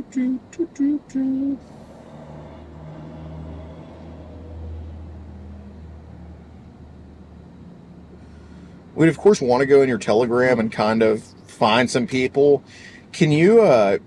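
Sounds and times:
hummed voice sounds: 0.0s - 4.6s
low vehicle engine rumble: 0.0s - 13.9s.

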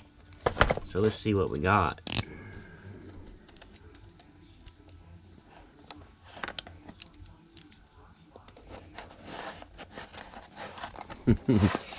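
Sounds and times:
cardboard parcel handling: 8.7s - 11.9s.

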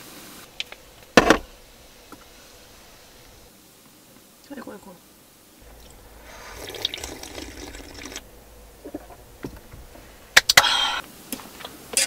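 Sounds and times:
liquid pouring into cup: 5.8s - 8.2s.

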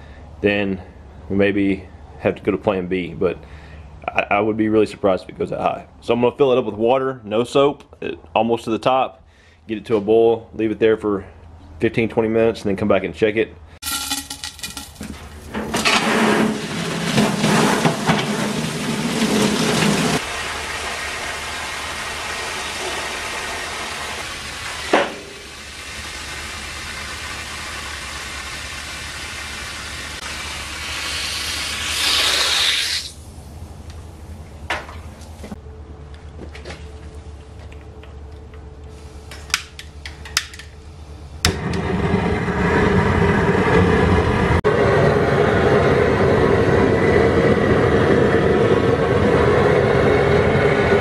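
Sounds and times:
water pouring into metal tub: 13.8s - 33.2s
gas burner roaring: 13.8s - 35.6s, 38.1s - 51.0s.

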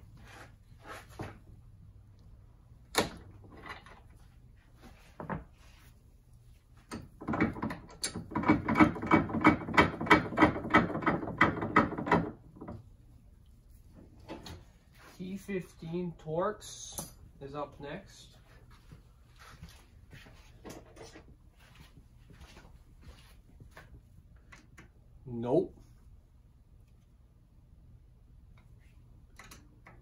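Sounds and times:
hand tools clicking and knocking: 6.9s - 12.8s.

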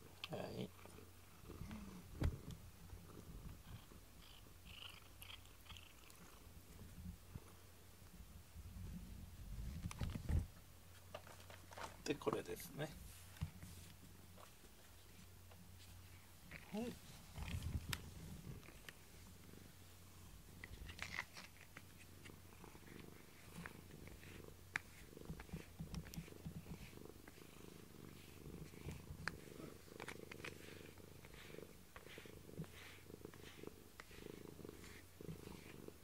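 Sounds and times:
cat purring: 0.0s - 7.7s, 15.2s - 36.0s
small clicks and rustles: 9.6s - 12.4s, 13.3s - 19.0s, 20.6s - 27.4s.

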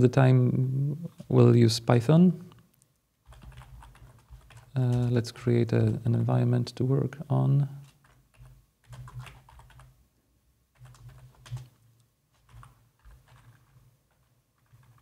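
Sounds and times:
keyboard typing: 3.2s - 6.0s, 7.8s - 10.0s, 10.8s - 15.0s.

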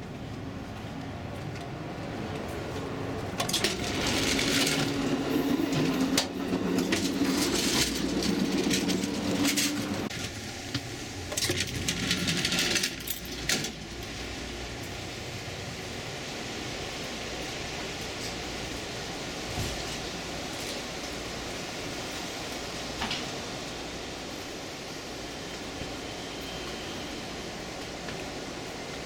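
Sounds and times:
train gangway rattling and clicking: 0.0s - 29.0s.

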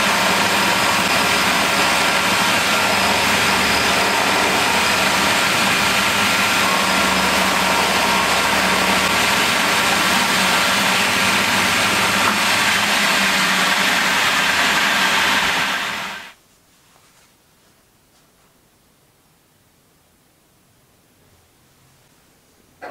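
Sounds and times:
milling machine cutting metal: 0.0s - 16.4s.

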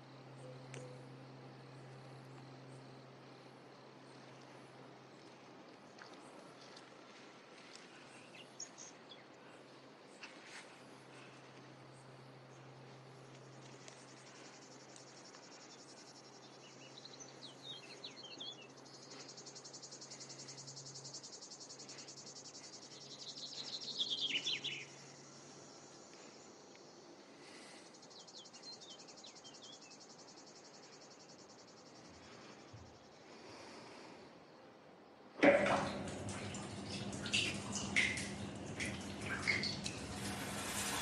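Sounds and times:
low steady hum: 0.0s - 27.8s, 34.9s - 41.0s
insects trilling: 35.6s - 41.0s.

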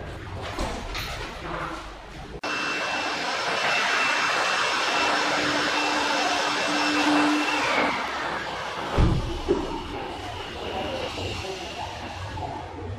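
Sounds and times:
electric motor whine: 2.4s - 12.6s.

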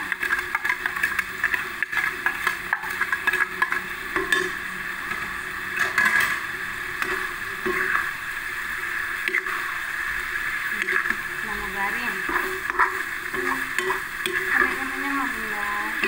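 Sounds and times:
sauce sizzling: 0.0s - 16.0s
metal spatula scraping a pan: 5.8s - 8.1s.

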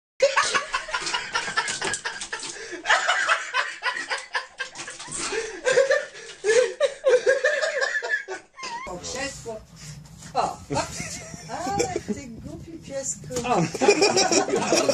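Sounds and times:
people laughing: 0.2s - 8.9s, 10.7s - 12.3s, 13.5s - 14.9s.

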